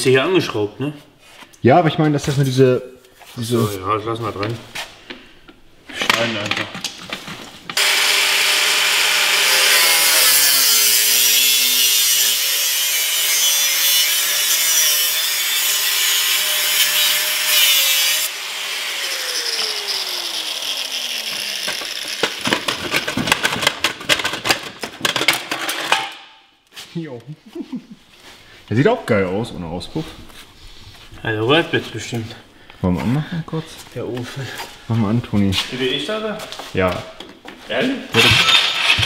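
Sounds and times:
angle grinder cutting metal: 0:07.8 - 0:23.1, 0:38.2 - 0:39.0.

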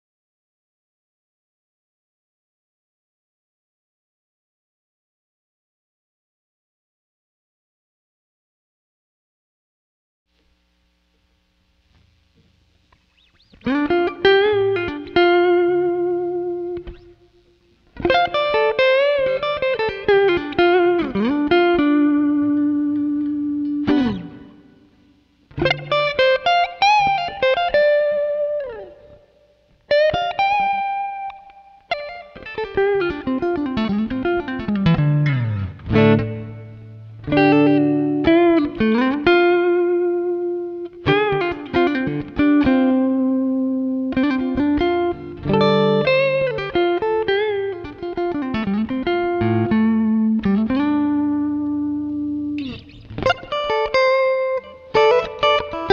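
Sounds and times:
clean electric guitar with reverb: 0:11.9 - 0:55.9.

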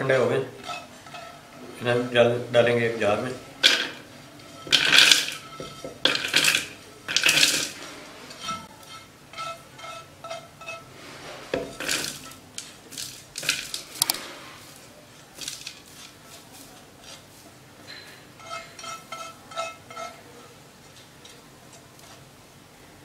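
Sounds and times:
nuts rattling into plastic jar: 0:06.1 - 0:07.8, 0:12.9 - 0:13.9.

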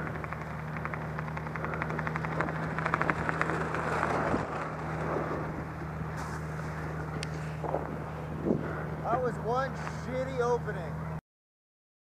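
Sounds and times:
rapid fluttering ticks: 0:00.0 - 0:05.3
propeller aircraft engine drone: 0:00.0 - 0:11.2.

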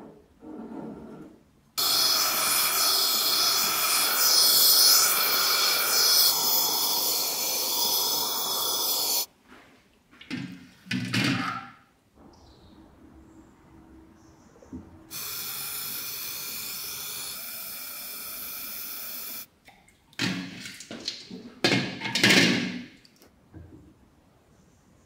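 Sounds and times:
gas torch flame hissing: 0:01.8 - 0:09.3, 0:15.1 - 0:19.5
hot metal sizzling in oil: 0:01.8 - 0:09.3, 0:15.1 - 0:19.5.

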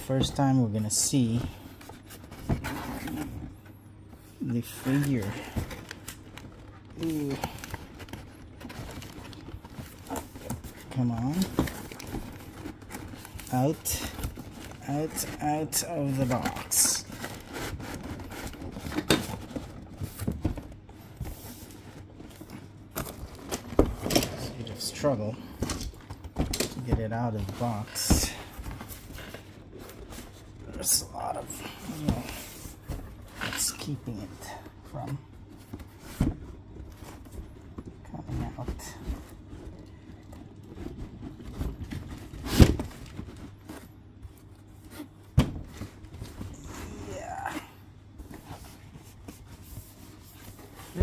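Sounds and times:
cardboard rubbing and scraping: 0:01.2 - 0:03.6, 0:04.6 - 0:25.2, 0:48.1 - 0:51.0.

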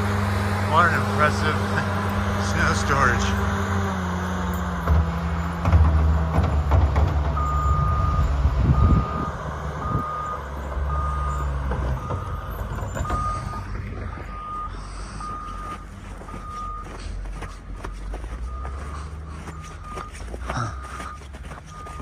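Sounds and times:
diesel engine rumble: 0:00.0 - 0:22.0
reversing alarm beeping: 0:07.2 - 0:22.0.

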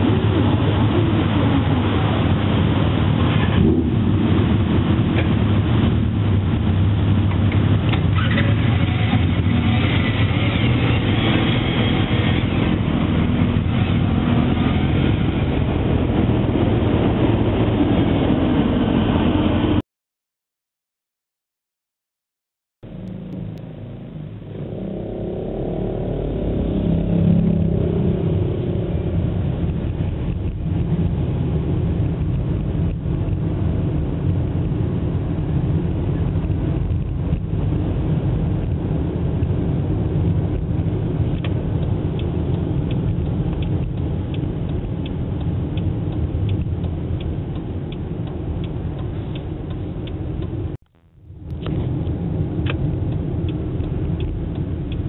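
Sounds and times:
road and wind noise: 0:00.0 - 0:19.8, 0:22.8 - 0:55.0
motorcycle engine accelerating: 0:22.9 - 0:30.9
faint regular ticking: 0:52.6 - 0:55.0.

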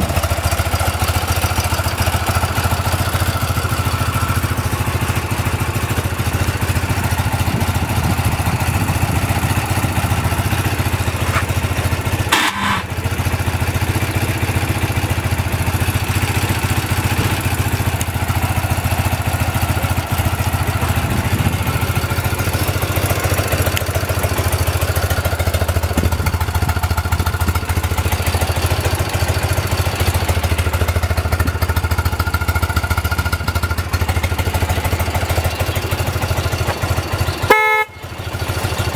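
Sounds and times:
motorcycle engine idling: 0:00.0 - 0:38.9.

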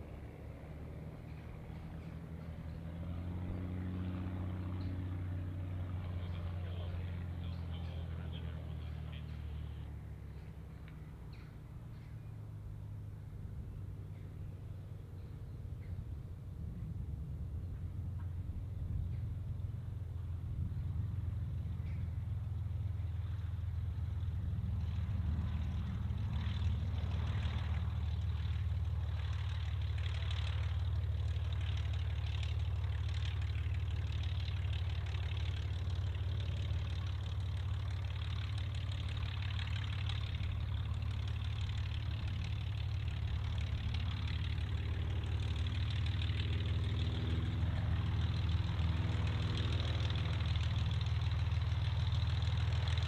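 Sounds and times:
propeller aircraft engine rumbling: 0:00.0 - 0:53.0.

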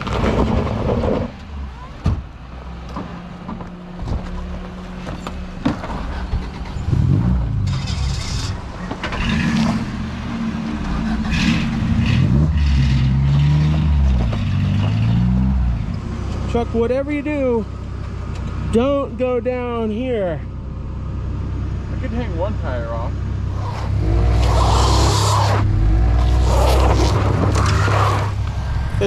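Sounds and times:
gravel crunching under tyres: 0:00.0 - 0:16.8, 0:23.5 - 0:29.0
car engine revving: 0:00.0 - 0:29.0.

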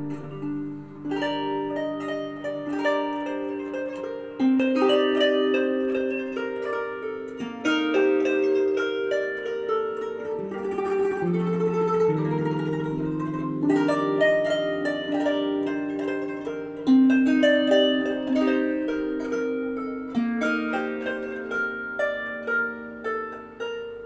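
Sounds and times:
plucked zither music: 0:00.0 - 0:24.0.

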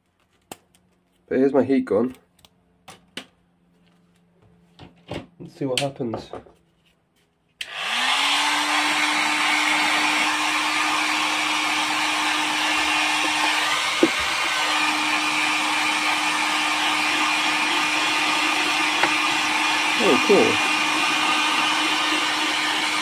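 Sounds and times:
heat gun fan blowing air: 0:07.6 - 0:23.0.

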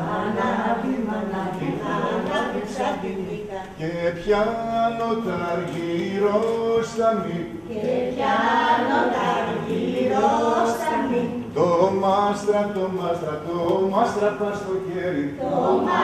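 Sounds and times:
group singing unaccompanied: 0:00.0 - 0:16.0.

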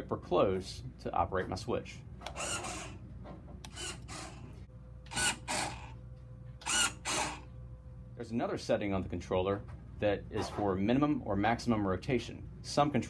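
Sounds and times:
steady low hum: 0:00.0 - 0:13.0
actuator mechanical bursts: 0:02.2 - 0:03.0, 0:03.6 - 0:04.5, 0:05.1 - 0:05.9, 0:06.6 - 0:07.5.

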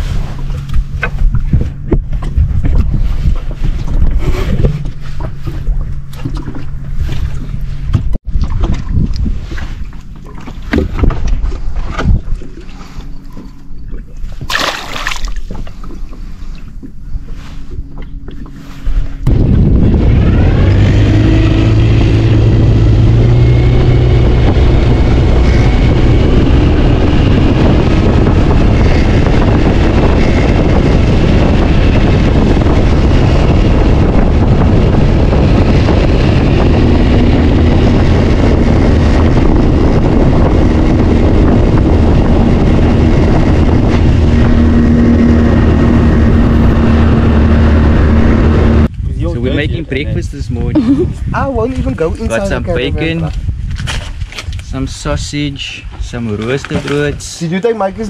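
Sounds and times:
engine running at speed: 0:00.0 - 0:53.3
low hum: 0:00.0 - 0:54.2
heavy rushing noise: 0:19.2 - 0:48.9.

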